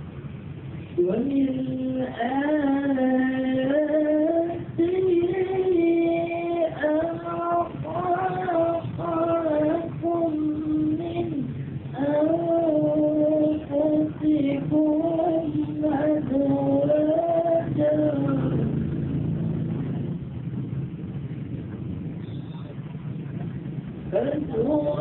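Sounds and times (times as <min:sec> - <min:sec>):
man chanting: 0:24.1 - 0:25.0.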